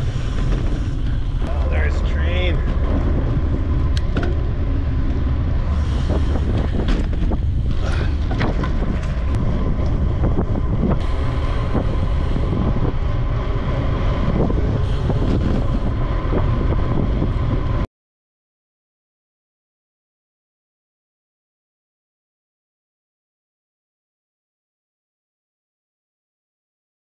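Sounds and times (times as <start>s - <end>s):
low rumble from ride: 0.0s - 17.9s
wind buffeting microphone: 0.0s - 17.9s.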